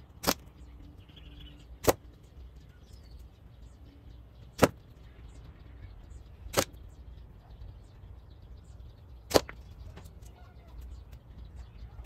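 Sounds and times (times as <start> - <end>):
slingshot shots cracking: 0.2 - 0.5, 1.8 - 2.1, 4.6 - 4.8, 6.5 - 6.8, 9.3 - 9.6
faint bird chirps: 0.4 - 12.0.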